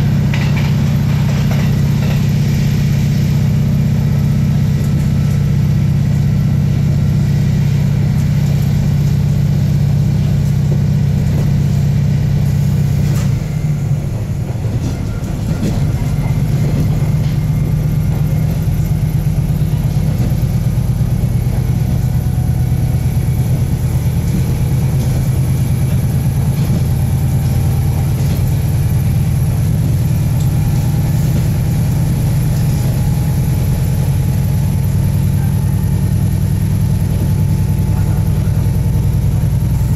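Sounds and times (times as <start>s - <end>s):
diesel engine droning: 0.0s - 39.9s.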